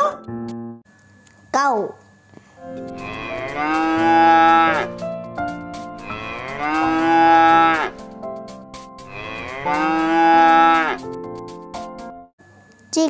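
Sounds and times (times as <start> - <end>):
cow mooing: 3.0 - 5.0, 6.0 - 8.0, 9.1 - 11.0.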